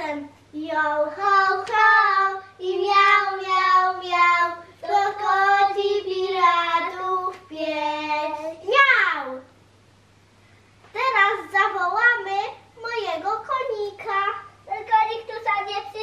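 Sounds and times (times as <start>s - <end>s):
child singing: 0.0s - 8.7s.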